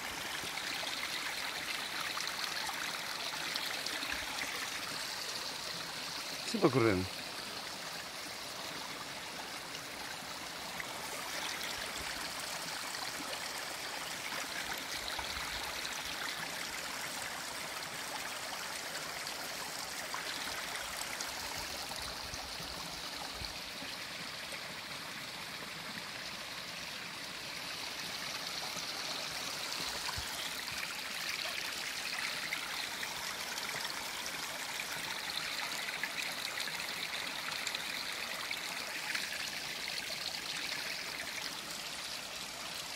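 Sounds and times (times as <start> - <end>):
stream water running over rocks: 0.0 - 42.9.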